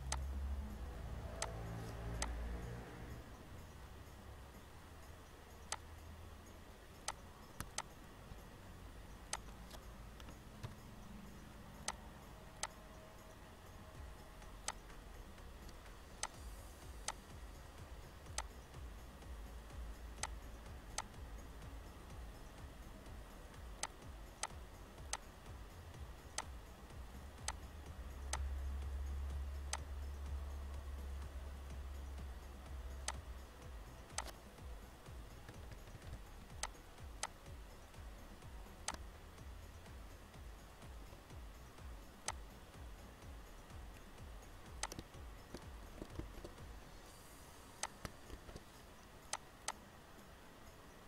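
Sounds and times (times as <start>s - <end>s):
faint steady hum: 0.0s - 51.0s
mouse and keyboard clicks: 1.2s - 2.4s, 7.0s - 7.9s, 9.3s - 10.8s, 34.1s - 34.4s, 38.8s - 39.0s, 44.8s - 46.6s.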